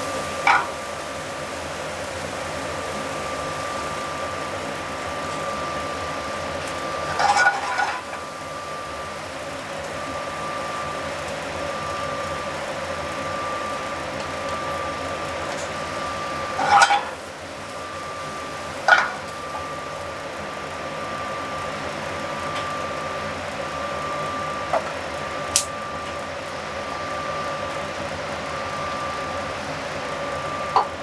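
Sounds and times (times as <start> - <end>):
pan sizzling: 0.0 - 31.0
thin steady whine: 0.0 - 31.0
metal pan clattering on grate: 0.5 - 0.8, 7.1 - 8.1, 16.6 - 17.2.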